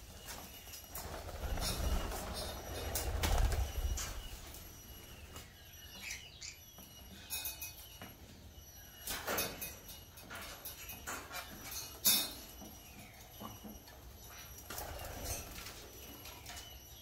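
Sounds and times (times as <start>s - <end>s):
parrot wings flapping: 0.9s - 4.3s.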